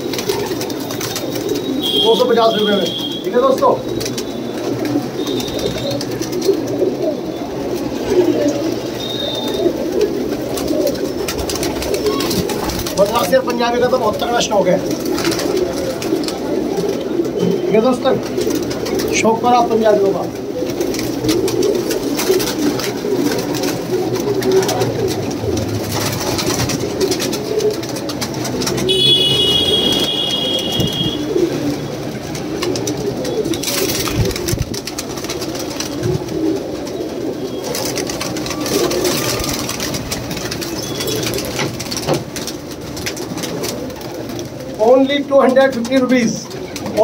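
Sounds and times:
pigeons cooing: 0:00.0 - 0:47.0.

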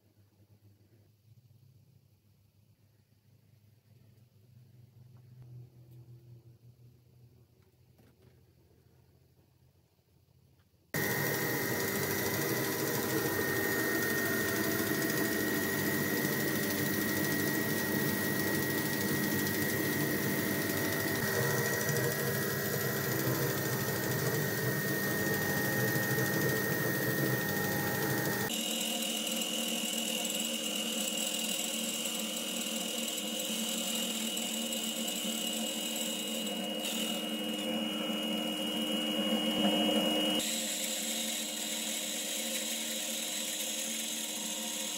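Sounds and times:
band saw motor whine: 0:11.0 - 0:44.9.

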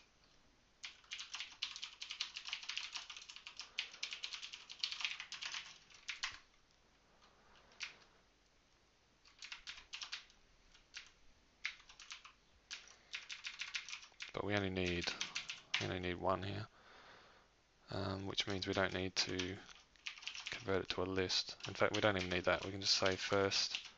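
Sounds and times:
typing on computer keyboard: 0:00.8 - 0:06.4, 0:07.6 - 0:08.0, 0:09.2 - 0:15.9, 0:18.4 - 0:20.7, 0:21.6 - 0:23.9.

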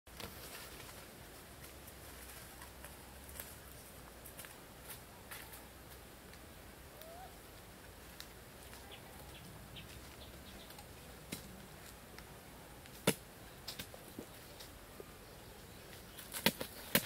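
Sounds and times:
bird chirp: 0:08.7 - 0:11.0.

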